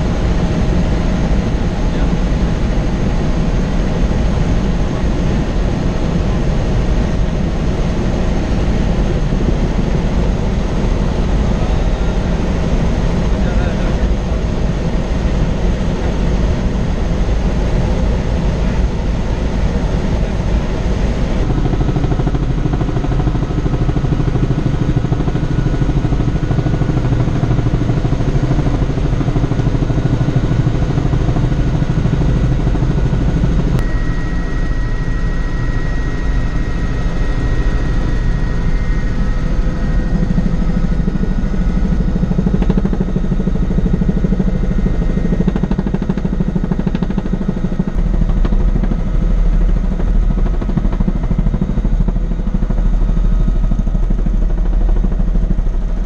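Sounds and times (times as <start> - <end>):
helicopter rotor and engine drone: 0.0 - 56.0
thin high tone: 33.8 - 40.8.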